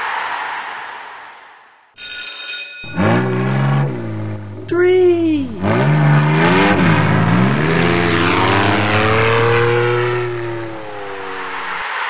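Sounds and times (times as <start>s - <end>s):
truck engine revving: 3.0s - 11.8s.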